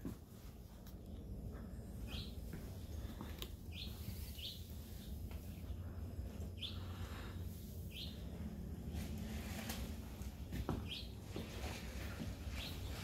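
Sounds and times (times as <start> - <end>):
low steady hum: 0.0 - 13.0
bird chirping: 1.6 - 8.4, 10.7 - 11.2, 12.5 - 13.0.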